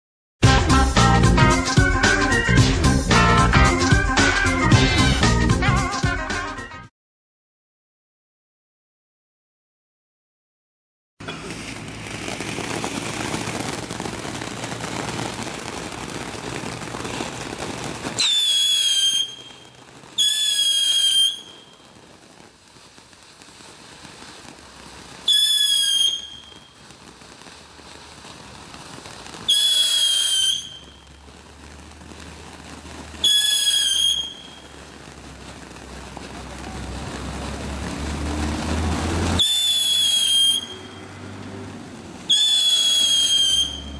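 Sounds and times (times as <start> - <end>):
firework hissing: 0.4 - 6.5, 11.2 - 43.9
shrill firework whistles: 11.2 - 41.3, 42.2 - 43.9.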